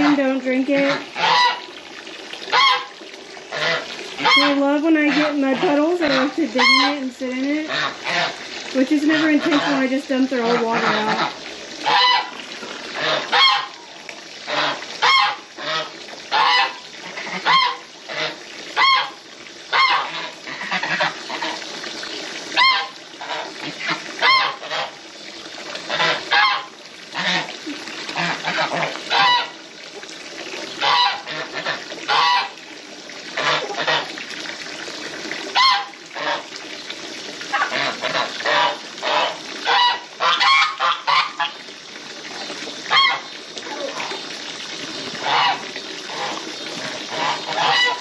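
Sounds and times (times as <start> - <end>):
geese honking: 0.8 - 1.7, 2.5 - 2.9, 3.5 - 7.0, 10.5 - 12.4, 13.0 - 13.8, 14.5 - 21.6, 22.6 - 24.9, 25.9 - 27.4, 28.2 - 29.6, 30.8 - 32.5, 35.6 - 36.4, 37.5 - 41.6, 42.9 - 43.3, 45.2 - 48.0.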